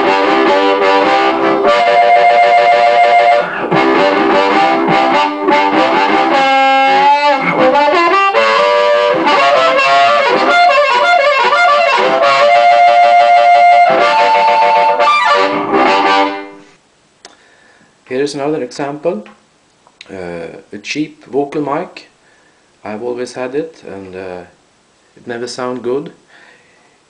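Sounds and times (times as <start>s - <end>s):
amplified blues harmonica: 0.0s - 16.7s.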